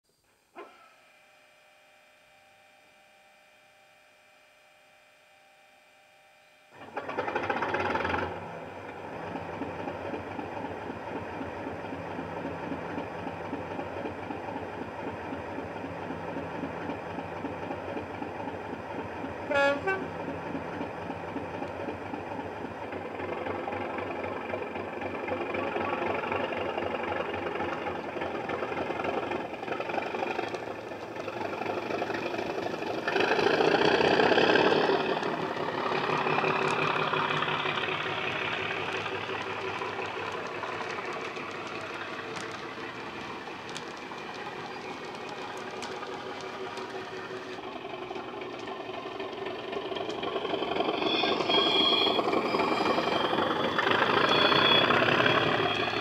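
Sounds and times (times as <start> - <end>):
diesel engine starting and idling: 6.8 - 56.0
horn toot: 19.5 - 20.1.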